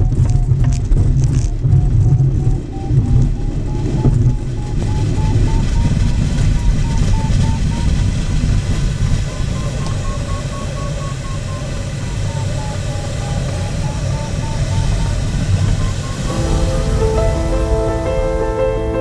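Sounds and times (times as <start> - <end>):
variometer beeps: 9.3 - 16.3
rushing air: 13.5 - 19.0
wheel rumbling on grass: 15.5 - 19.0.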